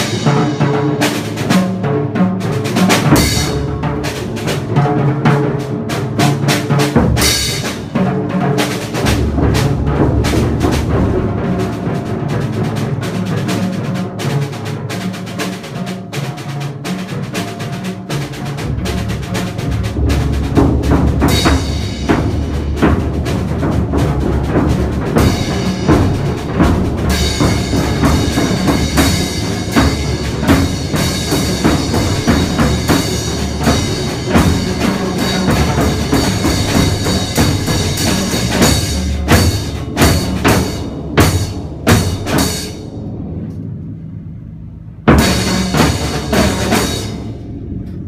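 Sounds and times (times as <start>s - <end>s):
percussion ensemble playing: 0.0s - 48.0s
cymbals ringing: 18.1s - 48.0s.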